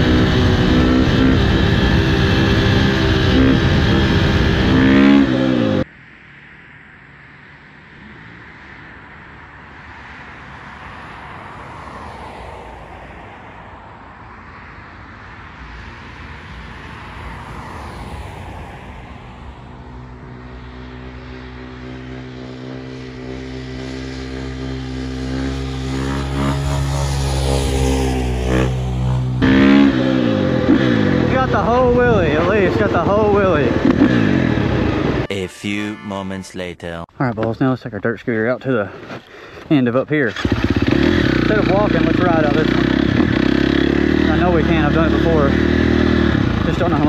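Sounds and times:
loud abrupt sound: 0:00.0 - 0:05.8
distant dirt bike engine revving: 0:00.0 - 0:05.9, 0:21.0 - 0:35.3, 0:40.3 - 0:47.0.

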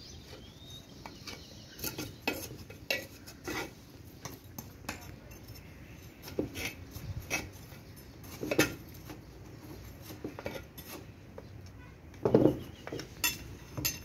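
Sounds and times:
metal tool scraping dry soil: 0:00.4 - 0:11.1.

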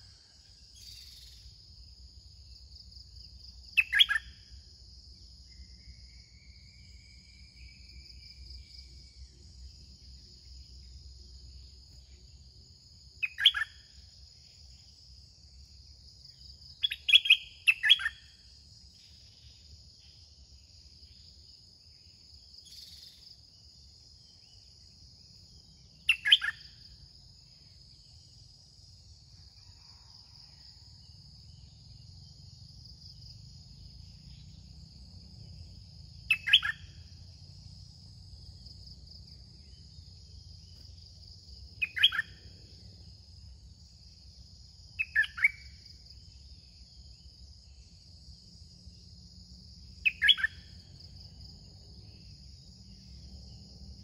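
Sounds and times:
high insect drone: 0:00.0 - 0:54.0
bird singing short phrases: 0:03.8 - 0:04.3, 0:13.2 - 0:13.8, 0:16.8 - 0:18.3, 0:26.0 - 0:26.7, 0:36.3 - 0:36.9, 0:41.8 - 0:42.4, 0:50.0 - 0:50.6.

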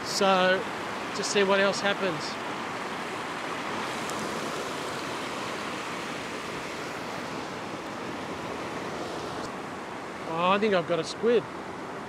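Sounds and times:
surf washing over rocks: 0:00.0 - 0:12.0.

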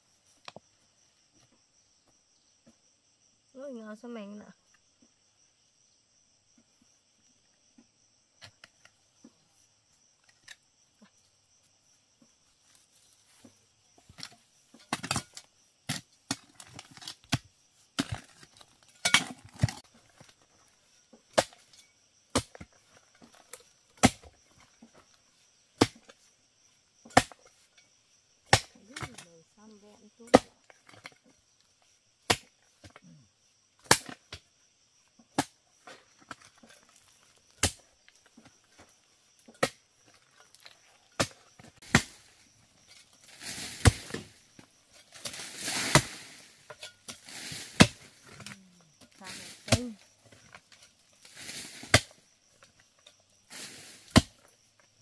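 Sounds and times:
crickets chirring: 0:00.0 - 0:55.0
sharp chopping strikes: 0:41.2 - 0:42.3.

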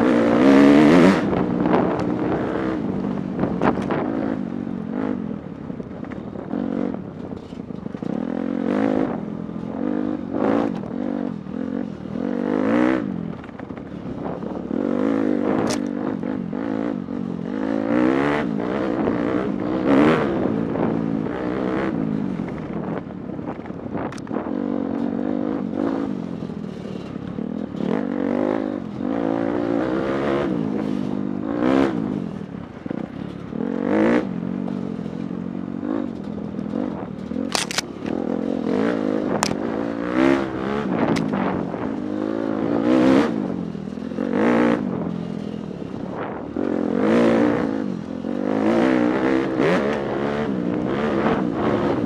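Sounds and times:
dirt bike engine revving: 0:00.0 - 0:05.5, 0:14.2 - 0:22.9, 0:24.1 - 0:52.0
wind flapping on microphone: 0:00.0 - 0:09.9, 0:18.2 - 0:26.2, 0:35.9 - 0:43.6, 0:44.4 - 0:48.0.

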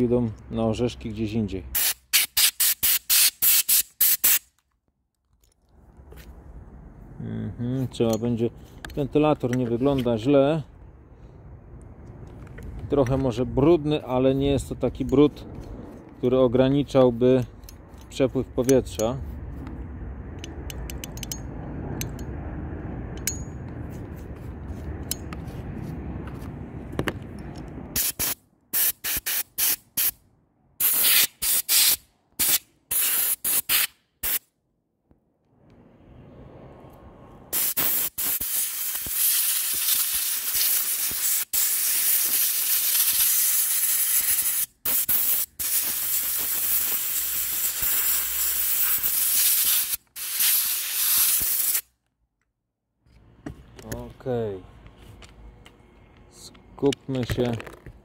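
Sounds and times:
low rumble: 0:19.2 - 0:28.0
compressed air hissing: 0:37.5 - 0:51.8.

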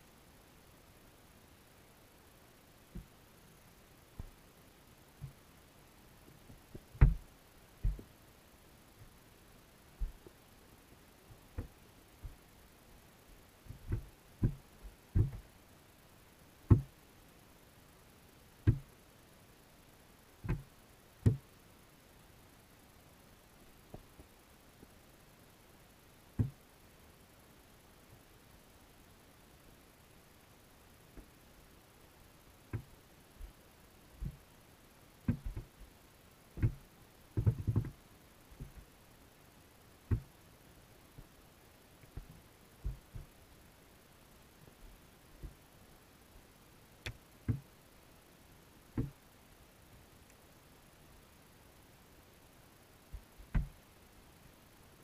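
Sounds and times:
dull underwater thuds: 0:06.7 - 0:08.1, 0:13.7 - 0:14.6, 0:15.2 - 0:15.4, 0:16.7 - 0:16.9, 0:42.2 - 0:43.3, 0:53.1 - 0:53.8.

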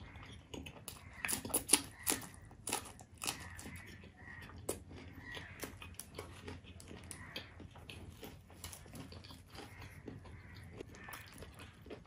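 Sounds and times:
chewing and lip-smacking: 0:00.0 - 0:12.0.

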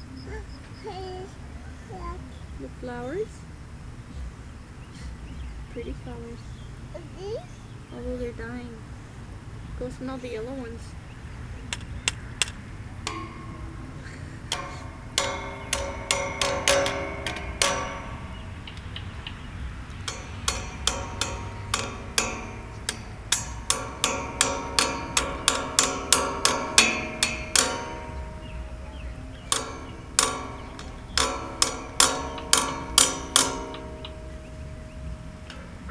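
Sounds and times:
toy hammer tapping metal railing: 0:11.7 - 0:35.9.

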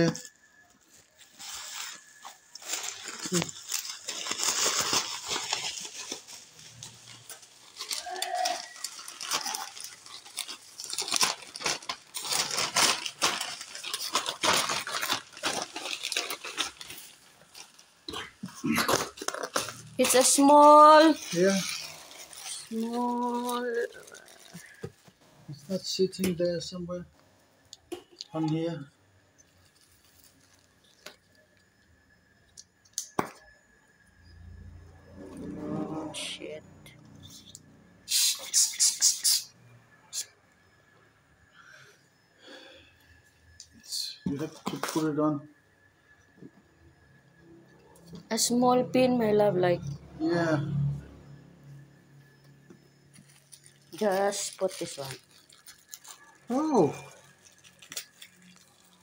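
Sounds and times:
packaging rustling and crinkling: 0:00.0 - 0:26.3, 0:29.4 - 0:31.7, 0:44.3 - 0:45.2, 0:53.1 - 0:59.0
small objects clicking and tapping: 0:32.4 - 0:33.5.

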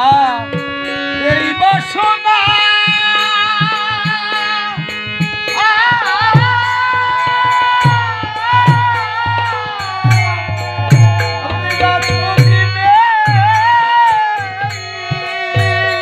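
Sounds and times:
devotional folk melody: 0:00.0 - 0:16.0
hand drum beating: 0:00.0 - 0:16.0.

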